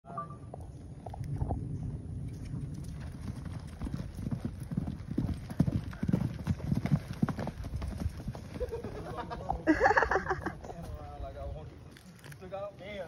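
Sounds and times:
horse hoofbeats on grass and dirt: 2.3s - 9.6s.

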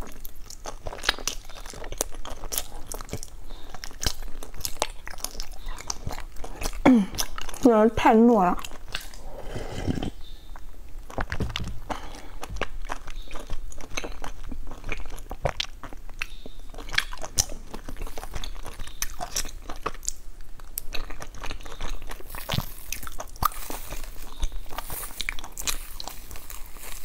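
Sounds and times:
chewing with wet mouth clicks: 0.0s - 7.8s, 8.5s - 9.3s, 10.5s - 27.0s
cling film crinkling: 22.3s - 27.0s.

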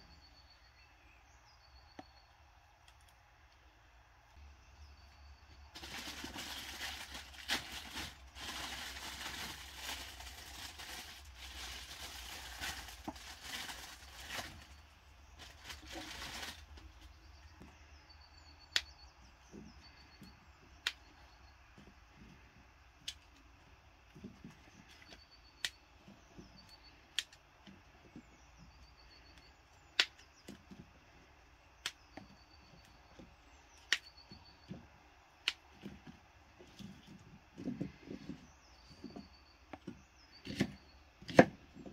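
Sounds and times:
birds chirping faintly: 0.0s - 41.9s.

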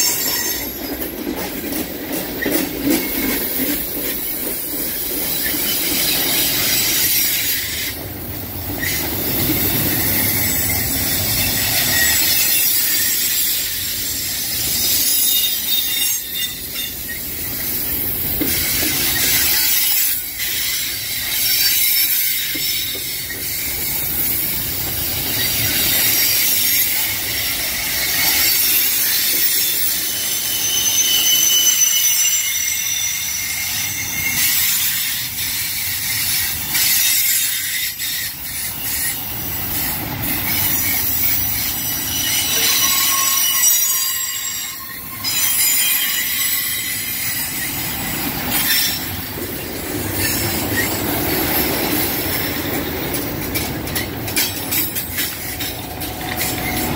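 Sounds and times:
train cars rolling past: 0.0s - 56.9s
wheels squealing on rails: 0.0s - 56.9s.

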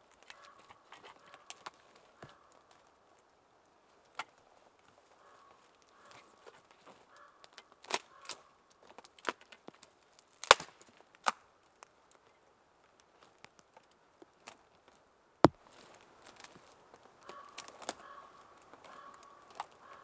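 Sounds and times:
small clicks and snaps: 5.8s - 15.0s, 18.6s - 19.8s.

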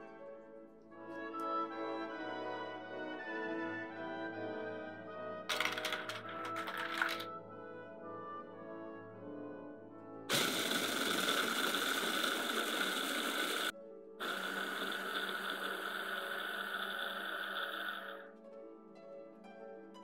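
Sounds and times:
food processor motor whine: 10.3s - 18.3s.

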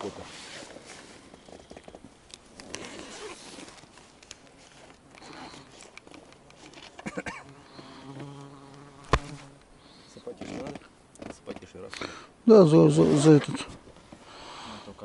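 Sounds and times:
handling rustling: 0.0s - 7.2s
zip being opened: 2.5s - 3.9s, 5.2s - 6.0s, 7.5s - 9.6s, 10.3s - 10.8s, 13.0s - 13.6s.

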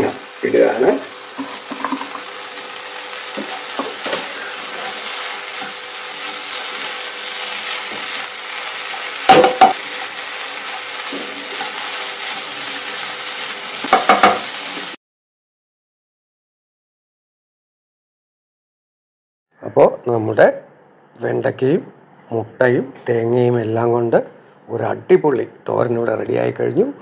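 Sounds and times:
food sizzling in a pan: 0.0s - 15.0s
spatula scraping a pan: 3.4s - 7.0s, 8.8s - 13.0s
spatula knocking on a pan: 9.3s - 9.8s, 13.9s - 14.5s.

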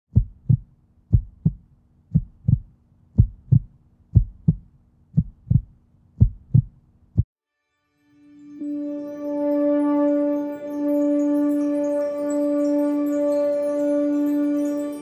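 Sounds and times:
heartbeat lub-dub: 0.1s - 7.3s.

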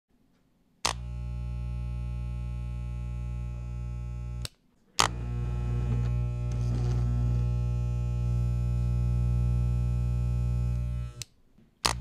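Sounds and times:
hair clipper switch click: 0.8s - 1.3s, 4.3s - 5.3s, 10.6s - 12.0s
electric hair clipper buzzing: 0.8s - 12.0s.

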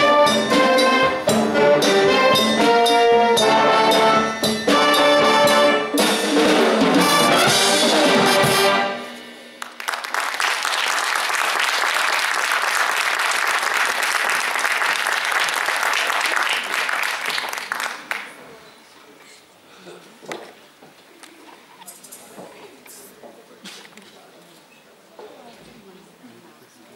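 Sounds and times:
wind band playing: 0.0s - 9.2s
audience applauding: 9.6s - 18.5s.

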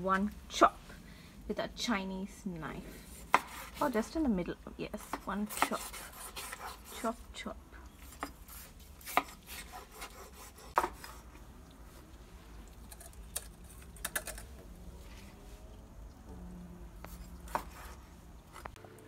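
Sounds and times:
cleaver chopping on wooden board: 3.3s - 3.7s.

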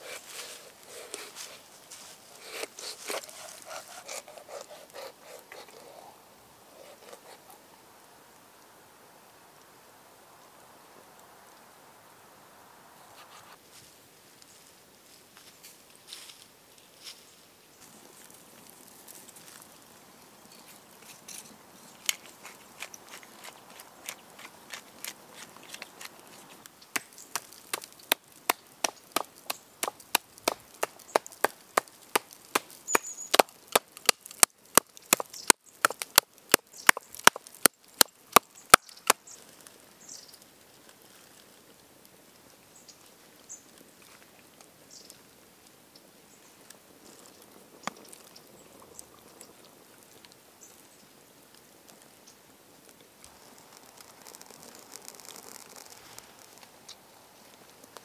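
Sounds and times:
faint rustling: 0.0s - 7.6s.

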